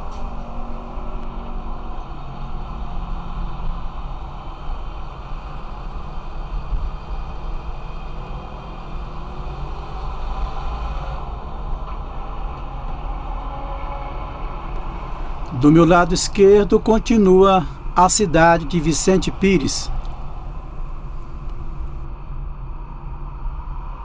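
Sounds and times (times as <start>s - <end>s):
car engine and road rumble: 0.0s - 1.2s, 14.8s - 22.1s
passing traffic: 0.0s - 1.6s, 14.4s - 22.1s.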